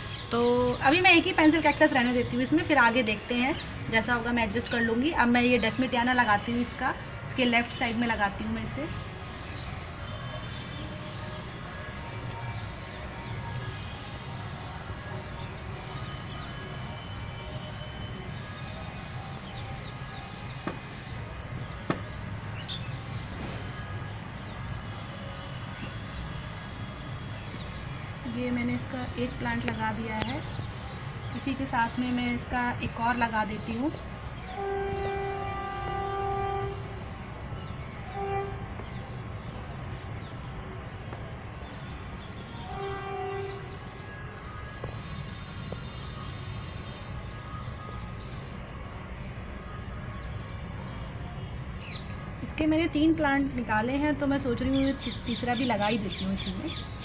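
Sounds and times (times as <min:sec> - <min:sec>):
train horn blasts: 0:34.5 - 0:37.0, 0:38.0 - 0:38.8, 0:42.5 - 0:43.9.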